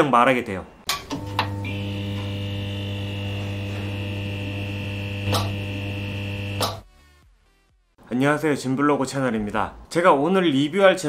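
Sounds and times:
neon sign buzzing with high whine: 0:01.0 - 0:06.8
switch click: 0:05.2 - 0:05.6, 0:06.6 - 0:06.8.

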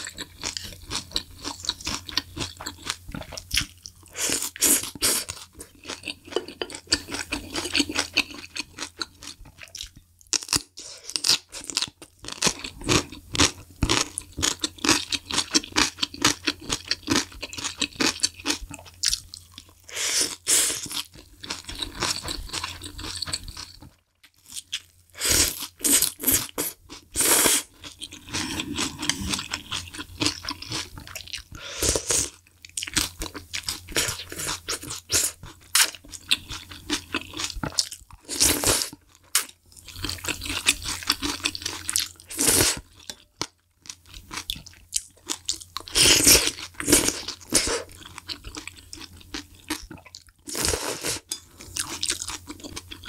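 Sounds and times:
noodles slurped: 0:27.2 - 0:30.0.

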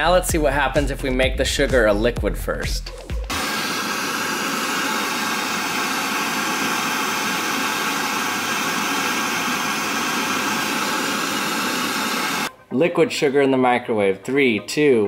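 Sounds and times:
blowtorch hissing: 0:03.2 - 0:12.5.

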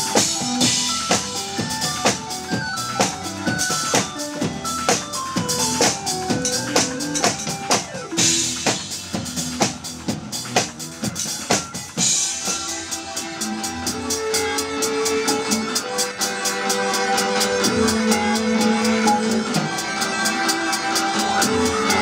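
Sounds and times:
drum kit steady beat: 0:00.0 - 0:22.0.

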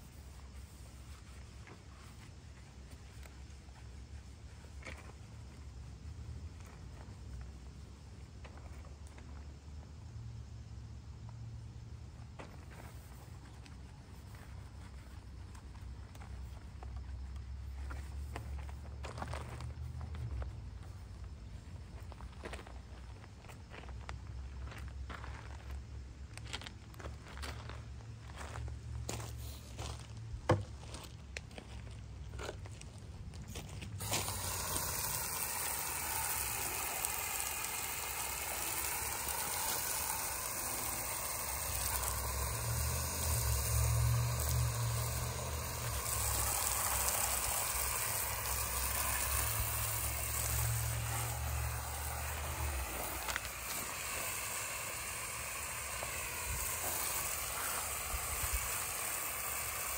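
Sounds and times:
garden hose spraying water: 0:00.0 - 0:30.5, 0:31.2 - 0:59.9
footsteps on gravel: 0:17.8 - 0:20.6, 0:21.2 - 0:34.8, 0:51.8 - 0:54.2.

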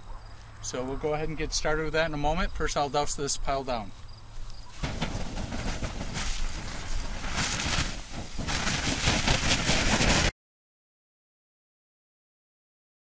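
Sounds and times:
microphone handling noise: 0:04.7 - 0:10.3
wind rumble: 0:04.7 - 0:10.3
water spraying on hot embers hissing: 0:04.8 - 0:10.0.

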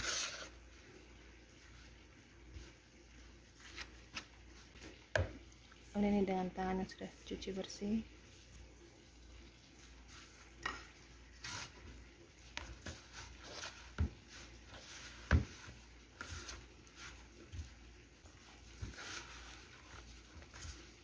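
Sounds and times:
hand kneading dough in bowl: 0:09.9 - 0:21.0.

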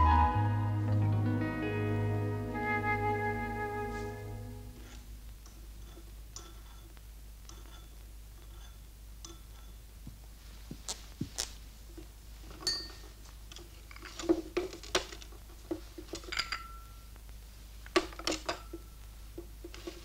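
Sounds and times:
china teacups clinking: 0:05.6 - 0:09.8, 0:12.6 - 0:13.1, 0:16.2 - 0:17.0.

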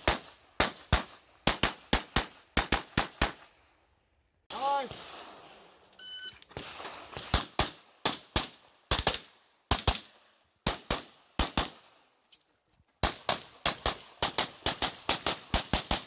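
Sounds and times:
pistol shots: 0:06.6 - 0:12.0.

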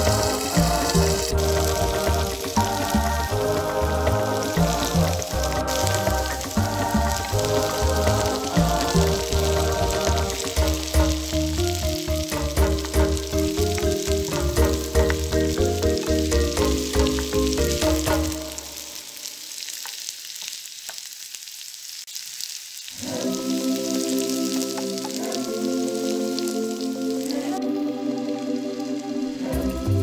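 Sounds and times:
background music with bass line: 0:00.0 - 0:18.6, 0:29.4 - 0:30.0
vegetables sizzling in a frying pan: 0:00.0 - 0:30.0.

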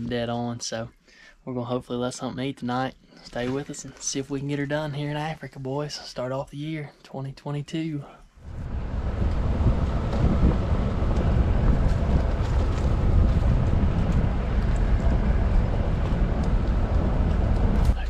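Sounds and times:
vehicle rumble on dirt track: 0:08.4 - 0:18.0
wind buffeting microphone: 0:08.4 - 0:18.0.

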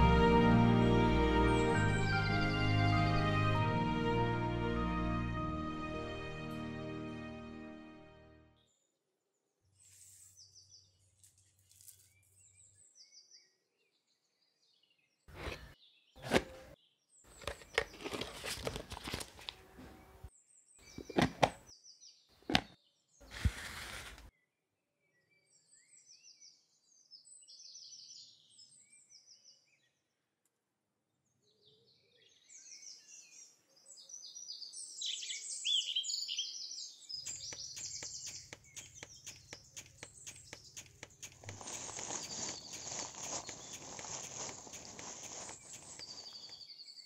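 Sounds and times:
birds chirping and singing: 0:32.3 - 0:47.0
fast even ticking: 0:37.3 - 0:46.5
pouring: 0:37.4 - 0:46.6.

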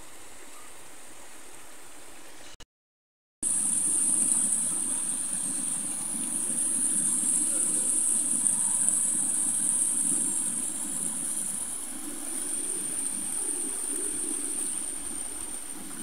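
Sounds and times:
stream rushing over stones: 0:03.4 - 0:16.0.

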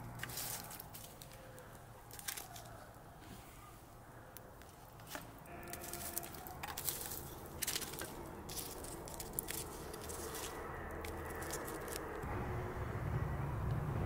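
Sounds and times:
metal tongs clicking and scraping: 0:05.0 - 0:12.2.

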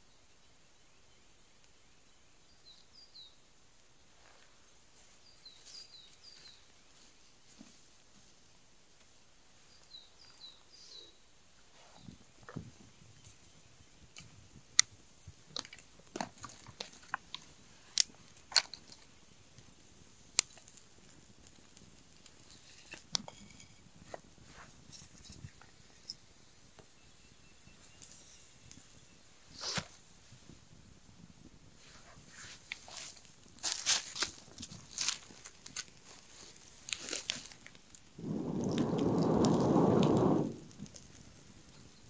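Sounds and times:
fire crackling and popping: 0:14.0 - 0:26.0, 0:32.6 - 0:42.0
twigs snapping and rustling: 0:32.7 - 0:40.1.

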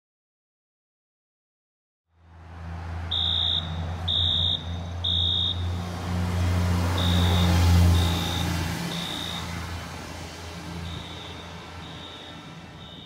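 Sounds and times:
fire alarm horn beeps: 0:03.1 - 0:05.6, 0:06.9 - 0:09.6, 0:10.8 - 0:13.0.

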